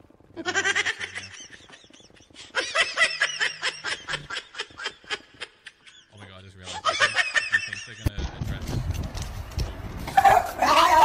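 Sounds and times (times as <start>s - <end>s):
dog high-pitched cries: 10.2s - 11.0s.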